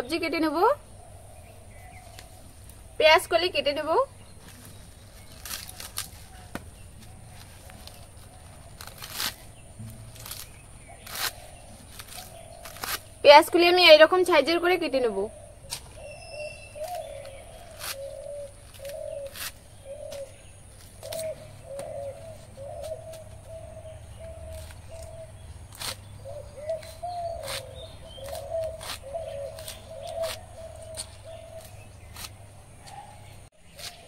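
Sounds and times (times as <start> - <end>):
blade slicing onion stalks: 4.5 - 13.7, 15.7 - 34.0
dove cooing: 15.3 - 25.4, 26.2 - 31.8.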